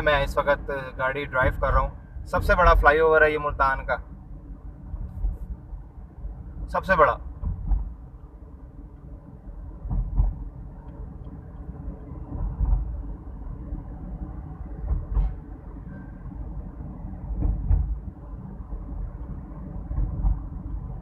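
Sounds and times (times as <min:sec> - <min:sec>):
car engine and tyre rumble: 0:00.0 - 0:21.0
low thumps: 0:04.8 - 0:06.4, 0:07.2 - 0:08.3, 0:09.6 - 0:21.0.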